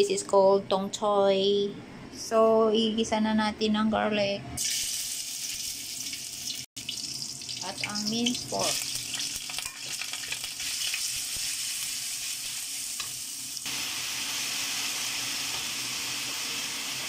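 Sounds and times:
food sizzling in a wok: 0:04.6 - 0:17.0.

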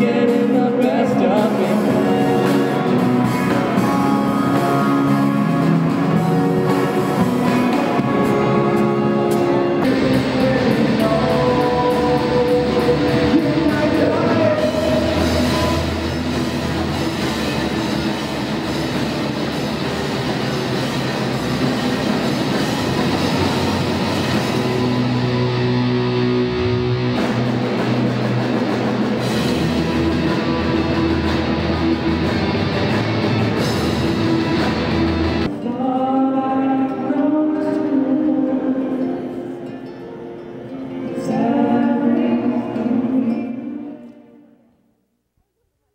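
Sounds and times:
person singing: 0:00.0 - 0:18.6, 0:35.5 - 0:44.5
rock band playing live: 0:00.0 - 0:38.8
acoustic guitar: 0:00.0 - 0:44.8.

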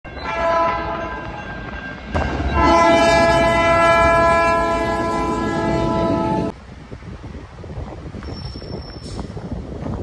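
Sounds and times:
train air horn blast: 0:02.6 - 0:06.5.

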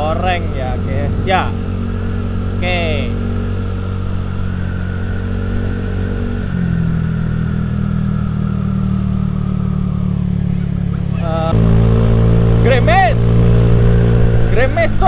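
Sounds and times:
motor scooter engine running: 0:00.0 - 0:15.0.

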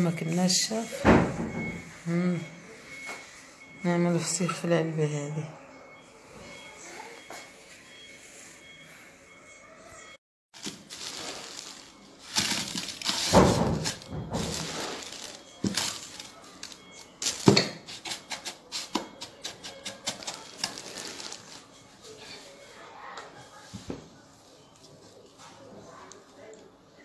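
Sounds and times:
coarse salt being handled: 0:10.6 - 0:16.3
grains clicking and clinking: 0:10.6 - 0:17.6, 0:19.8 - 0:21.6
plastic rustling: 0:10.6 - 0:18.9, 0:19.9 - 0:22.2.

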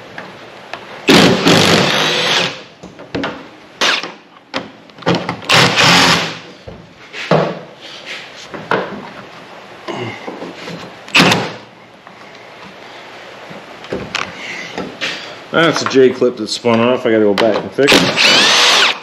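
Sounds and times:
power driver running in bursts: 0:05.5 - 0:06.4, 0:17.9 - 0:19.0.

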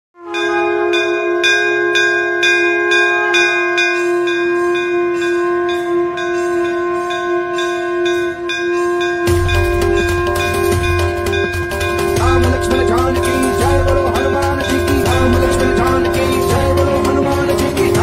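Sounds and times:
sustained tone: 0:00.2 - 0:18.0
bells struck and ringing: 0:00.3 - 0:18.0.

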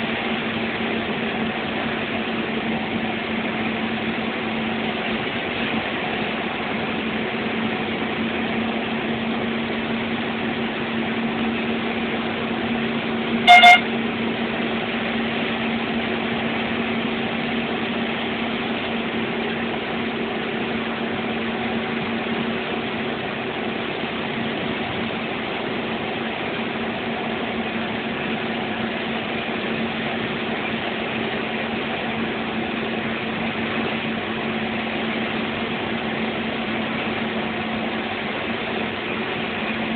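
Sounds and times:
bus engine and road noise: 0:00.0 - 0:39.9
short horn blast: 0:13.4 - 0:14.0.

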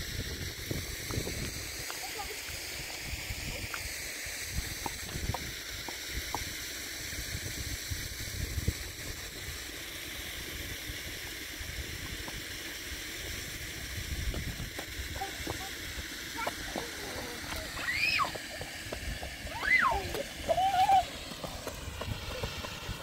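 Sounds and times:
wind buffeting microphone: 0:00.0 - 0:02.3, 0:04.5 - 0:06.4, 0:07.1 - 0:09.6
shallow stream running: 0:00.0 - 0:23.0.

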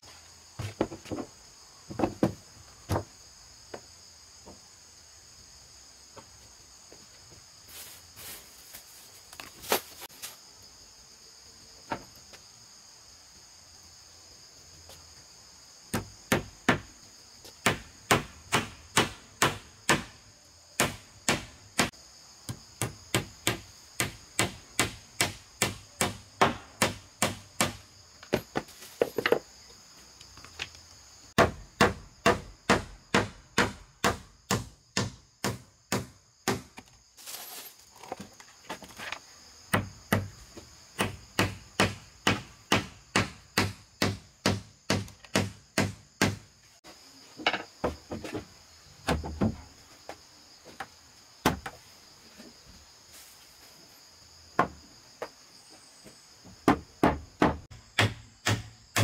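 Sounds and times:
insects trilling: 0:00.0 - 0:59.0
hand tool striking wood: 0:15.9 - 0:16.9, 0:17.6 - 0:20.2, 0:20.8 - 0:29.4, 0:31.4 - 0:37.0, 0:39.7 - 0:40.3, 0:41.0 - 0:46.5, 0:56.6 - 0:59.0.

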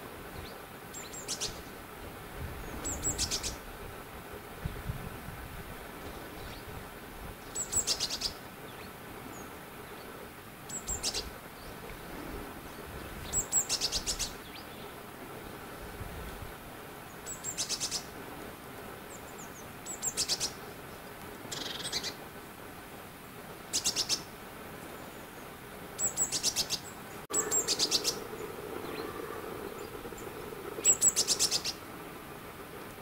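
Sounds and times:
small songbird singing: 0:00.3 - 0:01.8, 0:02.6 - 0:03.6, 0:07.4 - 0:10.1, 0:10.7 - 0:11.8, 0:12.7 - 0:15.0, 0:17.0 - 0:18.1, 0:19.1 - 0:22.2, 0:23.7 - 0:32.0.

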